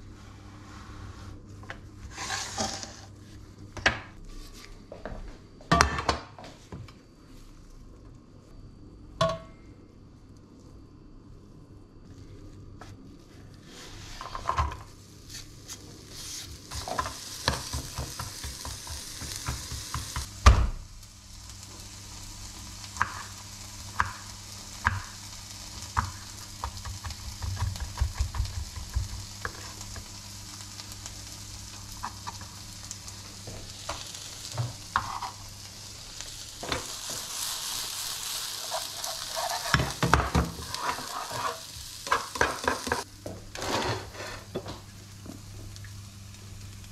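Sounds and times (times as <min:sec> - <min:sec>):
spatula scraping a pan: 0:02.1 - 0:03.1, 0:34.9 - 0:35.4, 0:38.6 - 0:43.0, 0:43.6 - 0:44.6
onion sizzling in frying pan: 0:02.1 - 0:03.4, 0:13.6 - 0:46.9.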